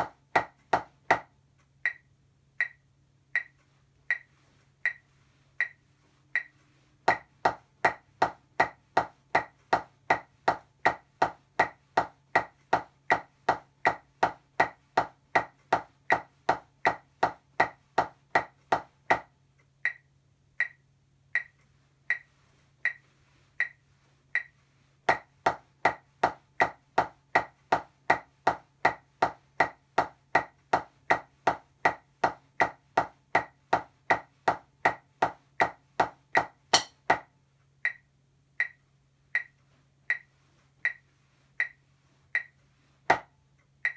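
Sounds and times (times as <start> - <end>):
drumsticks striking practice pad: 0.0 - 1.3, 7.1 - 19.3, 25.1 - 37.3
metronome clicks: 1.1 - 5.8, 6.4 - 7.3, 19.8 - 23.8, 24.4 - 25.2, 37.8 - 43.9.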